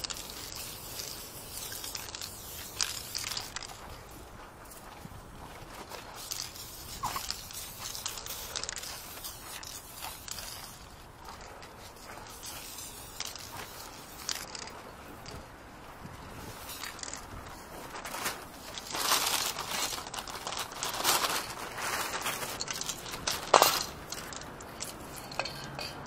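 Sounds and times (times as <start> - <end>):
spray paint can hissing: 0.0 - 3.8, 6.1 - 10.9, 12.0 - 15.3, 16.4 - 17.3
scuffing and rustling: 0.8 - 25.1.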